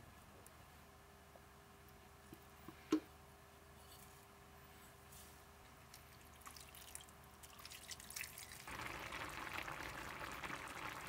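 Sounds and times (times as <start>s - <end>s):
stew bubbling: 5.9s - 11.0s
water pouring into pot: 6.2s - 11.0s.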